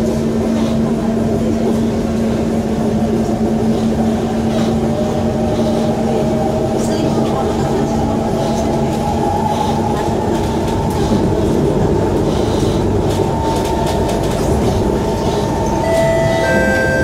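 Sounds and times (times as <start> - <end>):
train wheels rumbling: 0.0 - 17.0
high whining tones: 15.6 - 17.0.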